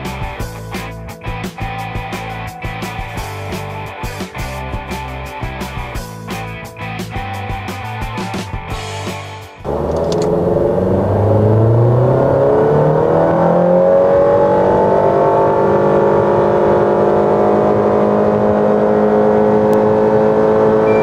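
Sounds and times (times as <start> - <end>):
car engine at full throttle: 9.0 - 21.0.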